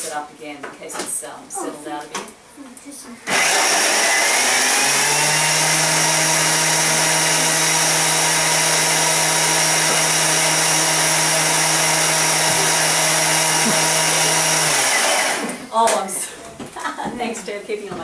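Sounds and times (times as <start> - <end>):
food processor motor whirring: 3.3 - 15.7.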